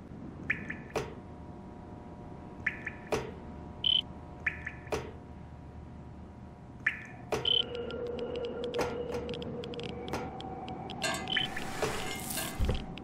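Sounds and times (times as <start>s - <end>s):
electric hum: 0.0s - 13.0s
chirping blips: 0.4s - 1.0s, 2.6s - 5.2s, 6.8s - 11.6s.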